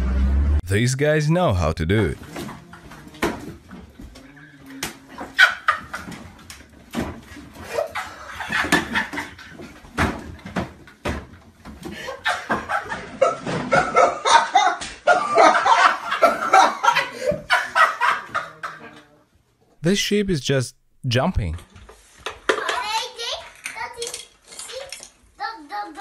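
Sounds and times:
people laughing: 5.2s - 6.3s, 7.6s - 9.7s, 11.9s - 19.1s.

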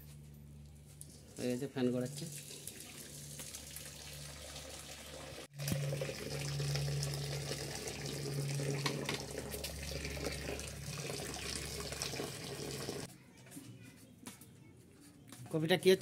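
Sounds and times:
water pouring into metal basin: 1.4s - 13.1s.

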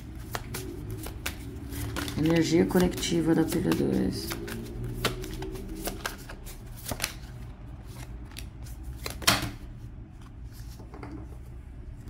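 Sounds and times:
cards being shuffled: 0.0s - 10.9s.

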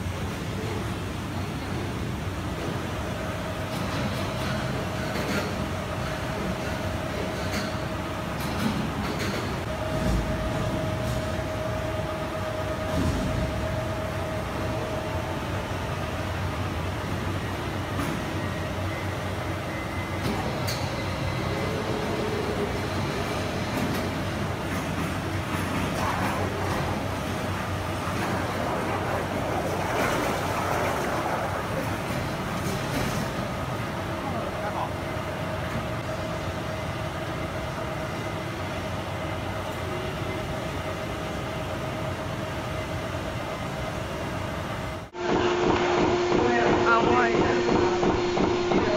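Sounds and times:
furnace motors running: 0.0s - 48.9s
machinery low hum: 0.0s - 48.9s
quench tank churning: 25.5s - 33.8s
steady machine whine: 42.0s - 48.9s.

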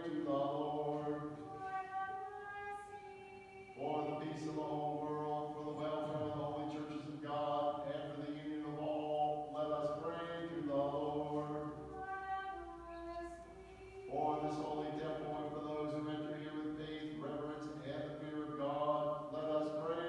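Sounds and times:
choir chanting: 0.0s - 20.0s.

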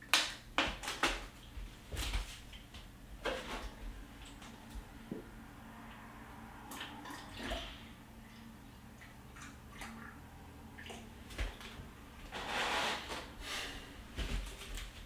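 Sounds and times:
water trickling and splashing: 6.6s - 11.7s.

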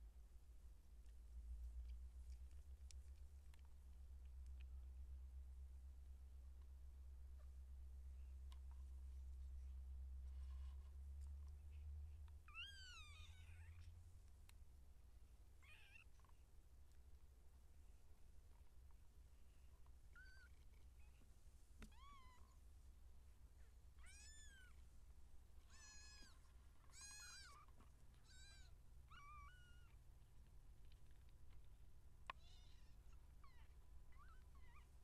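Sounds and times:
low steady hum: 0.0s - 35.0s
kittens mewing: 25.7s - 29.9s.

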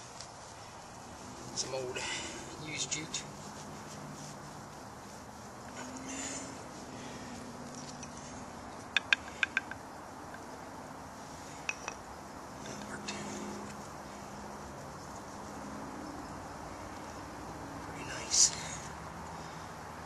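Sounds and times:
light metallic clinks: 7.6s - 10.5s, 11.5s - 12.9s.

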